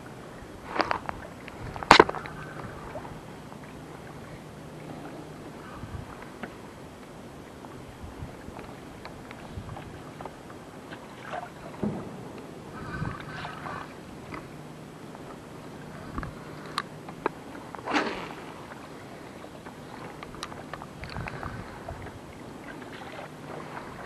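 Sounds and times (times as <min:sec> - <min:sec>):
faint steady hum: 0:00.0 - 0:24.0
water lapping against boat hull: 0:00.0 - 0:24.0.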